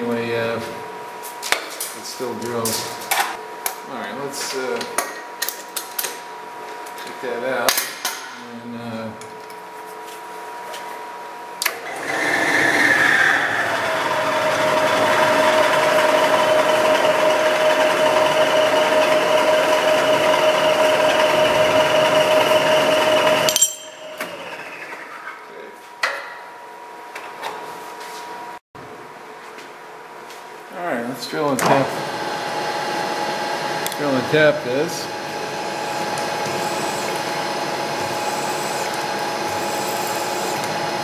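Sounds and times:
drill press motor running: 11.7s - 24.9s, 31.9s - 41.0s.

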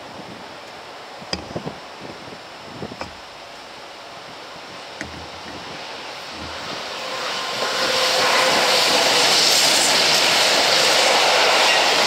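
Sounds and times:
freight train rolling past: 4.8s - 12.0s.

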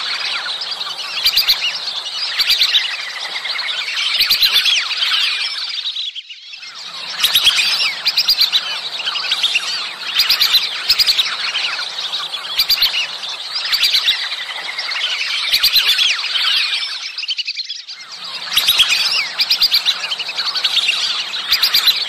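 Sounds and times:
ducks whistling: 0.0s - 5.9s, 6.5s - 22.0s.

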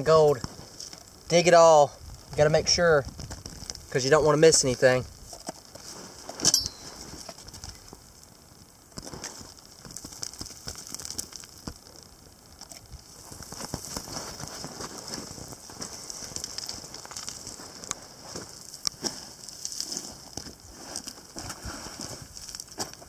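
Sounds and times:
hand scraping gravel: 0.0s - 8.0s, 9.0s - 12.0s, 12.6s - 23.0s
gravel crackling and trickling: 0.0s - 23.0s
pebbles clicking: 8.9s - 21.4s.

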